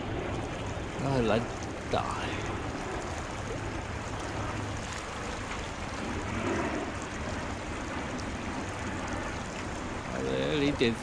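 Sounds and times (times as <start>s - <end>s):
shallow river rushing: 0.0s - 11.0s.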